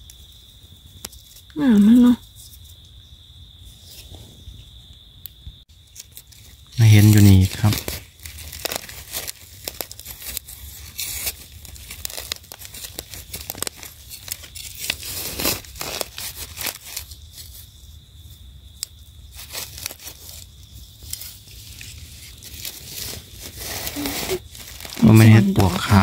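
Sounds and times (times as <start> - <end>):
dry leaves crackling and rustling: 5.8 - 17.9, 19.3 - 26.0
soil scraping and crunching: 7.6 - 17.5, 19.3 - 26.0.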